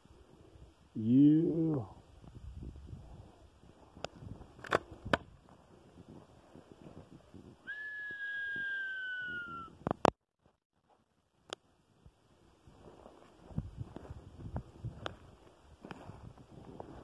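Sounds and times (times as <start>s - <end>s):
sharp clicks: 4.0s - 5.3s
long whistled note: 7.6s - 9.7s.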